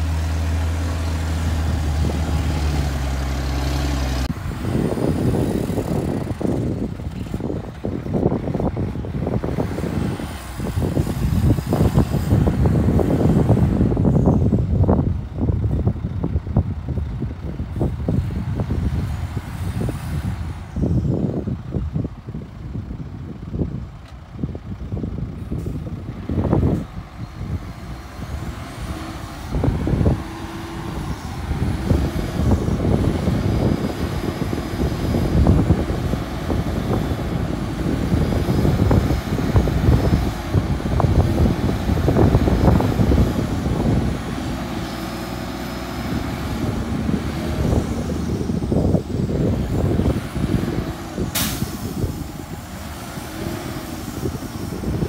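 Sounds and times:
diesel truck engine revving: 0.0s - 55.0s
sharp hiss of air: 46.9s - 55.0s.

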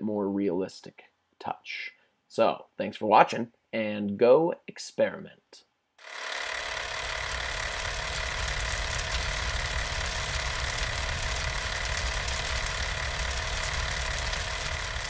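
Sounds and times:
film camera running: 6.0s - 15.0s.

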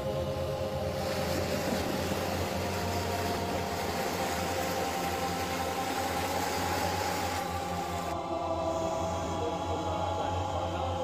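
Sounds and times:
floodwater rushing: 0.0s - 11.0s.

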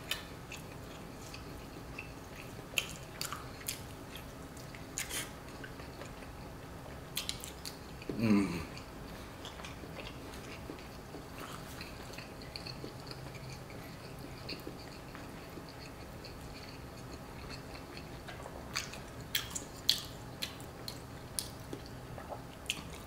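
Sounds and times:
person chewing food: 0.0s - 23.0s
mouth clicks and smacks: 11.8s - 23.0s.

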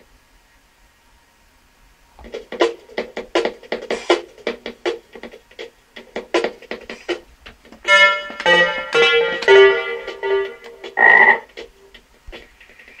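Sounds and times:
sustained synth notes: 7.9s - 11.5s.

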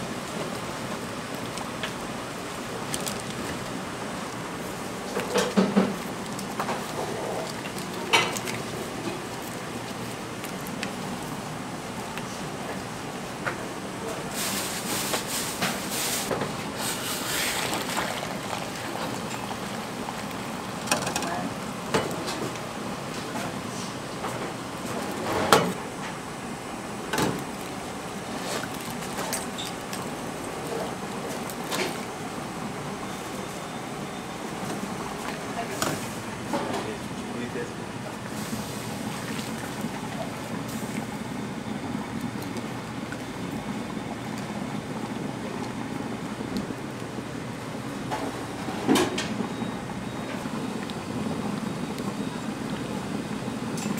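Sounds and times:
broth pouring and splashing: 0.0s - 12.9s, 14.3s - 25.2s, 27.4s - 32.5s, 34.4s - 48.7s.

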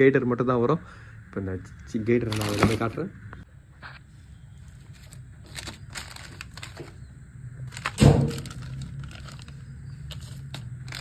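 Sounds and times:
plastic packaging rustling: 2.2s - 3.0s, 4.6s - 7.1s, 7.7s - 11.0s
loud thump: 8.0s - 8.5s.

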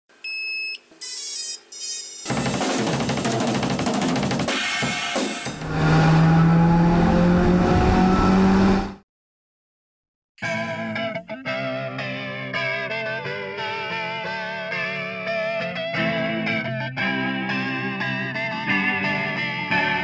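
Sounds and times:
short electronic beeps: 0.2s - 2.3s
drums and cymbals: 2.2s - 5.7s.

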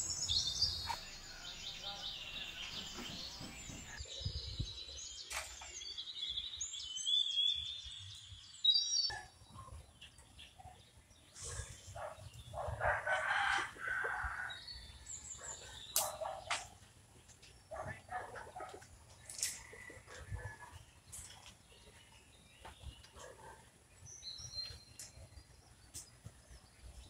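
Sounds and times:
small birds chirping: 0.0s - 27.0s
rooster crowing: 12.8s - 14.6s.

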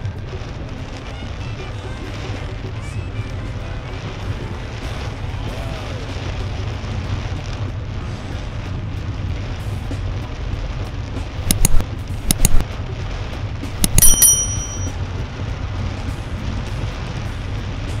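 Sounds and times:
car driving through heavy rain: 0.0s - 13.8s, 14.9s - 18.0s
mouse clicks: 11.5s - 12.6s, 13.8s - 14.3s
short bell ding: 13.8s - 15.0s.

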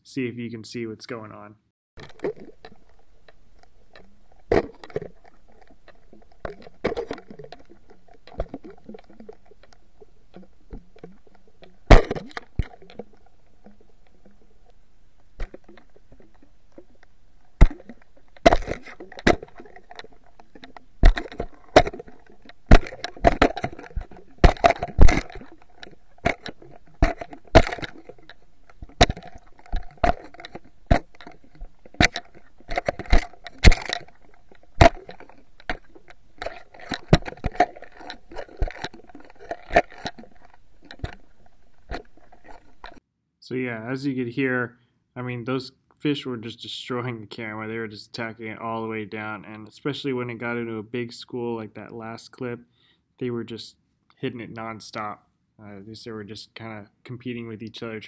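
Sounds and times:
fish knocking on underwater camera: 15.4s - 41.3s.

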